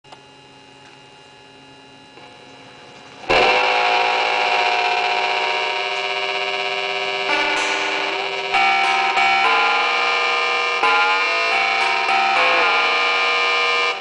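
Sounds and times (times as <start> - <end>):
ring-modulated guitar drone: 0.2 - 14.0
harsh ringing guitar note: 3.3 - 14.0.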